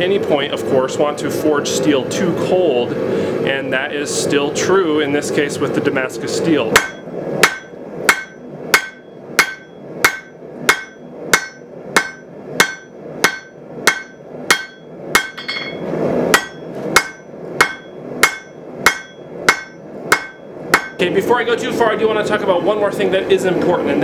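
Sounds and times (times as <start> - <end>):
hammer striking steel on anvil: 6.7 - 21.0.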